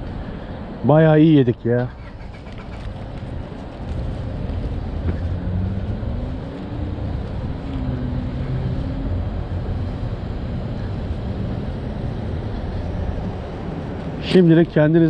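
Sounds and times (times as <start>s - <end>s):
road rumble: 0.0s - 15.0s
car engine rising in pitch: 4.0s - 13.9s.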